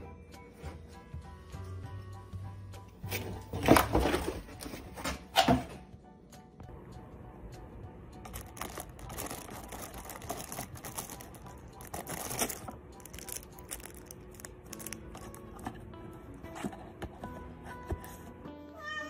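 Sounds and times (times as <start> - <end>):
cardboard box rustling: 3.1 - 5.1, 8.6 - 15.9
plastic wrapping crinkling: 8.3 - 15.6.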